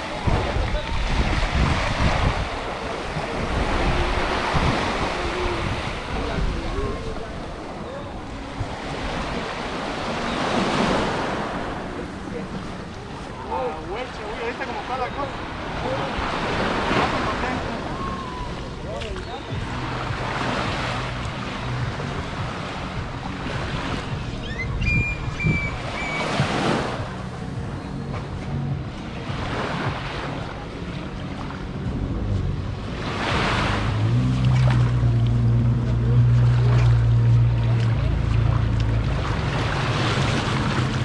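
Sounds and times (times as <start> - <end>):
small waves washing on sand: 0.0 - 24.4, 28.9 - 41.0
engine low hum: 31.2 - 41.0.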